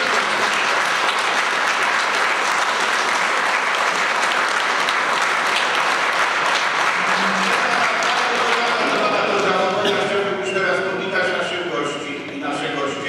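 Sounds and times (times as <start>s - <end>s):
audience applauding: 0.0s - 9.9s.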